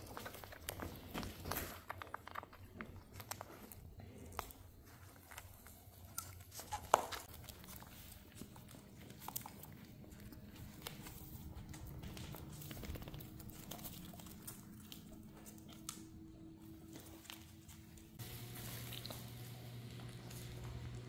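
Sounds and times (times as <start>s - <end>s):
paws clicking on wooden floor: 0.0s - 21.0s.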